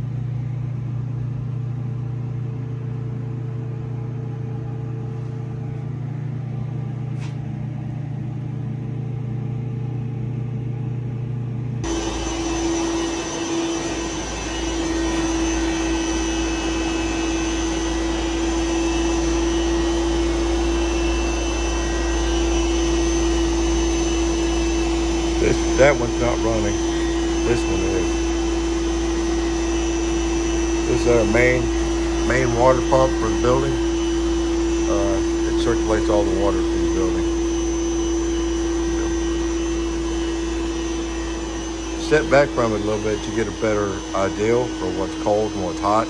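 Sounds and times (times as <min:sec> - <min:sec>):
low machine hum: 0:00.0 - 0:46.0
water pump motor whirring: 0:00.0 - 0:46.0
steady tone: 0:11.8 - 0:46.0.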